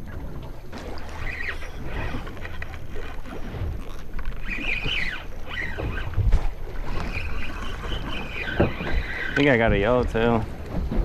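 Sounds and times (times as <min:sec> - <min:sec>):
wind and water rumble: 0:00.0 - 0:11.0
short high squeaks: 0:00.8 - 0:03.2, 0:03.8 - 0:09.6.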